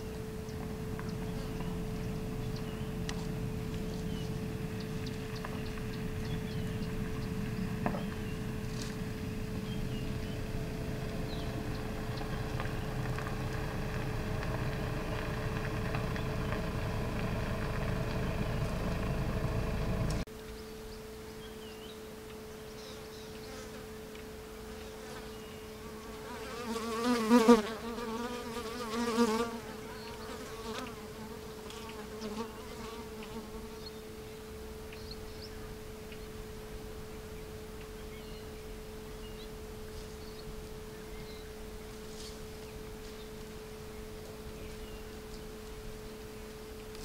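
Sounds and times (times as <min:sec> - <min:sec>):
flying insect buzzing: 0:00.0 - 0:14.4, 0:24.6 - 0:34.2
steady low hum: 0:00.0 - 0:47.0.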